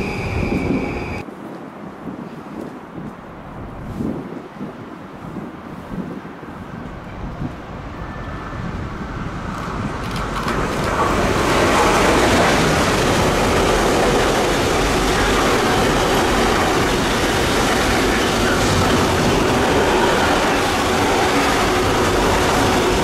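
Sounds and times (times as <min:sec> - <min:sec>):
freight train wagons rolling past: 0:09.3 - 0:23.0.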